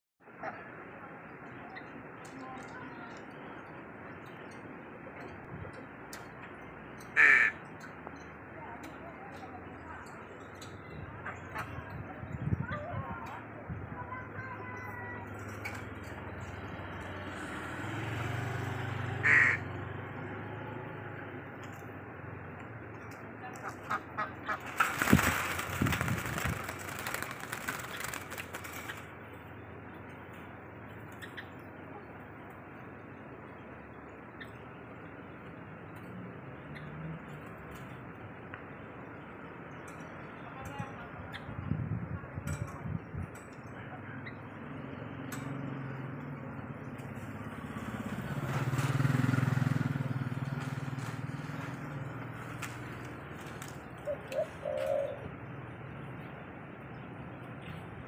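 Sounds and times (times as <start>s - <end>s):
doves calling: 5.7s - 22.0s, 22.8s - 32.2s, 46.8s - 56.3s
motorcycle engine passing by: 15.2s - 22.0s, 23.8s - 29.1s, 44.6s - 55.2s
rustling and clicks: 24.4s - 29.4s, 50.4s - 54.5s.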